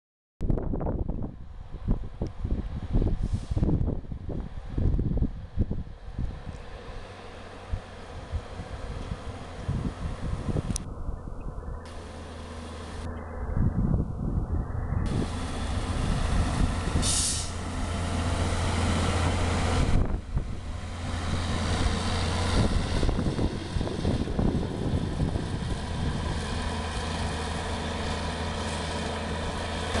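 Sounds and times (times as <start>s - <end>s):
diesel engine running: 1.1s - 30.0s
brief hiss: 3.2s - 3.7s, 17.0s - 17.6s.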